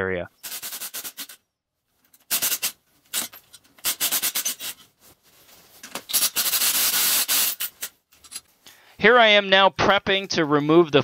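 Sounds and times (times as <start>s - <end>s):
cordless drill rasping: 2.3s - 4.8s, 6.0s - 7.7s.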